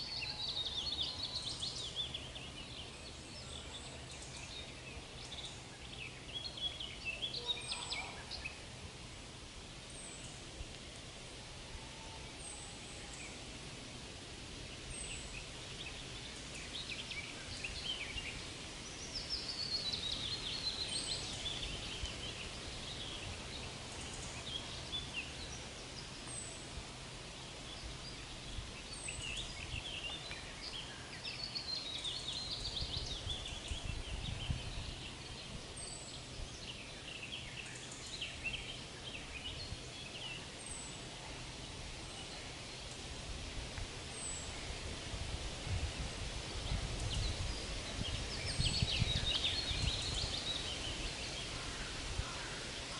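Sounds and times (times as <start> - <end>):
trilled birdsong phrases: 0.0 - 8.7.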